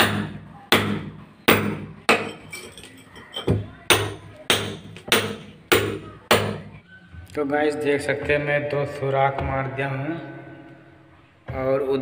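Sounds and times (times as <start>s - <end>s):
hammer striking chisel on brick: 0.0s - 2.5s, 3.5s - 6.7s.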